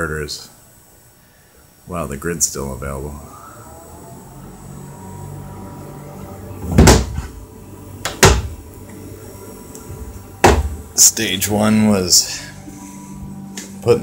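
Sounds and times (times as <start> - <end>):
metal cabinet door knocks: 10.4 - 10.8.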